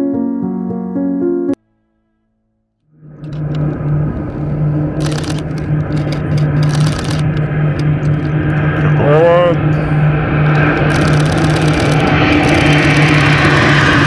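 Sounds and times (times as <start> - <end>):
turboprop aircraft drone: 2.9 - 14.0.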